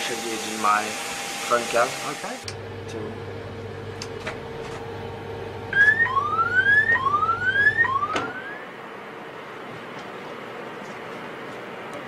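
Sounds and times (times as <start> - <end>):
electrical hum: 1.3 - 12.0
electronic alarm whooping: 5.7 - 8.7.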